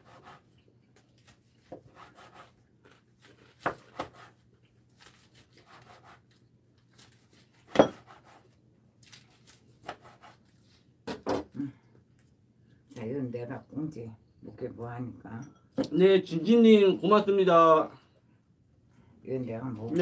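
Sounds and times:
knife slicing through food: 7.0s - 8.5s.

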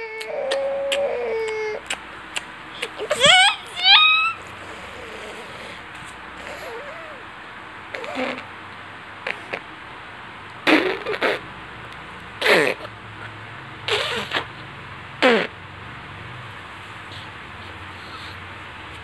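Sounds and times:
person making playful sounds: 0.0s - 5.8s.

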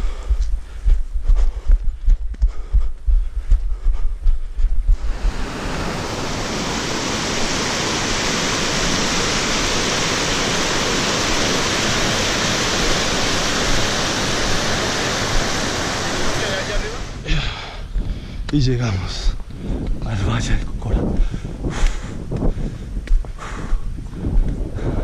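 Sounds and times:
footsteps on dirt trail: 0.0s - 5.8s, 17.4s - 25.0s
stream rushing over boulders: 4.9s - 17.6s.

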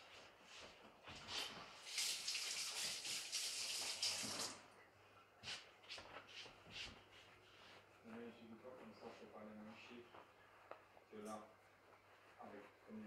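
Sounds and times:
tap water running over hands: 1.8s - 4.6s.

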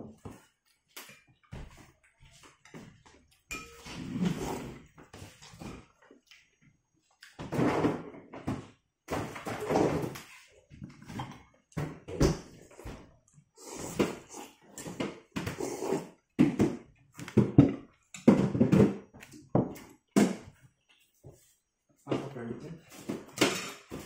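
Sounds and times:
person slurping and chewing: 4.0s - 4.8s, 13.6s - 16.3s.

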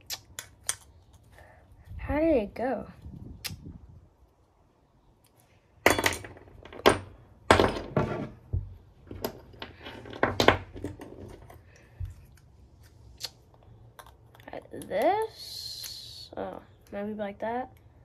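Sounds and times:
gear parts clattering on wooden bench: 5.8s - 11.6s.

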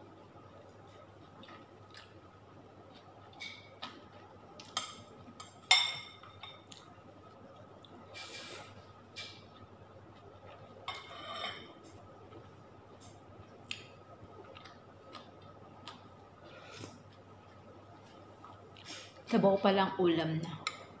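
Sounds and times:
faint steady hum: 0.0s - 21.0s
cutlery clinking on bowl: 4.7s - 6.6s, 10.9s - 11.8s.

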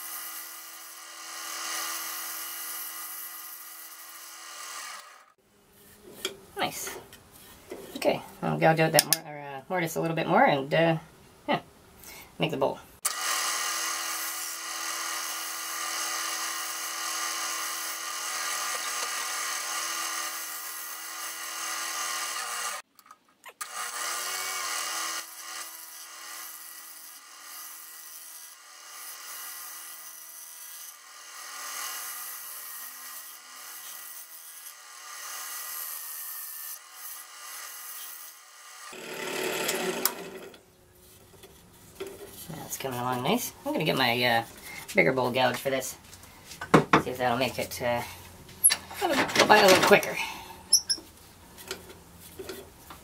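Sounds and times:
wood lathe motor whine: 0.0s - 5.3s, 13.1s - 22.8s, 36.7s - 40.6s
gouge scraping spinning wood: 28.4s - 45.0s.

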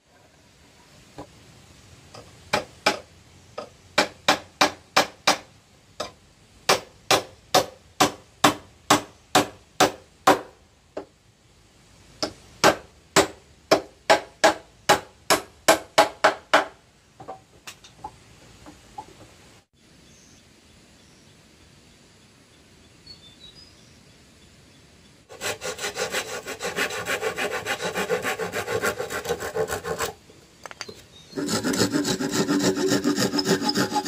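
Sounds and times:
hammer striking wooden planks: 2.2s - 11.1s, 12.2s - 17.4s.

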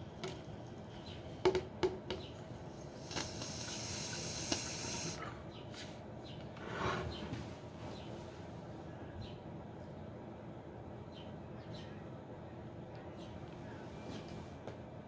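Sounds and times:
hissing water bubbling: 3.0s - 5.2s.

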